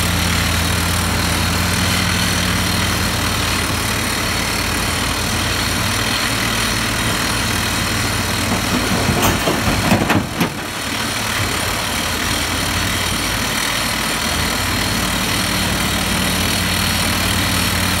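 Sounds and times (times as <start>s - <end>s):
excavator diesel engine running: 0.0s - 18.0s
rock hitting steel truck bed: 8.4s - 10.8s.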